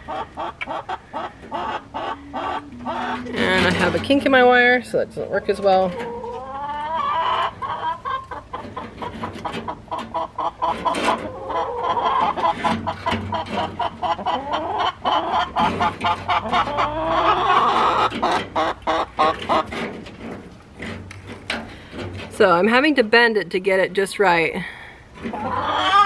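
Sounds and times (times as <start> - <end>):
hens clucking: 0.0 - 23.0, 25.0 - 26.0.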